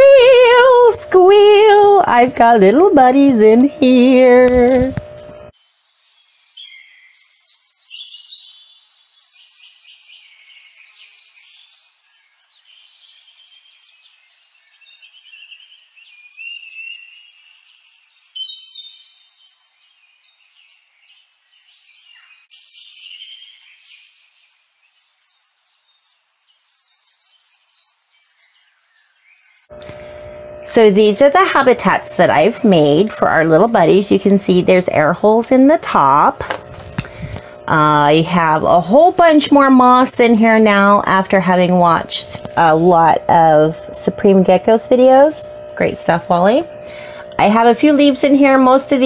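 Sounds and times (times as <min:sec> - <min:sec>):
songbirds singing: 0:00.0 - 0:36.4.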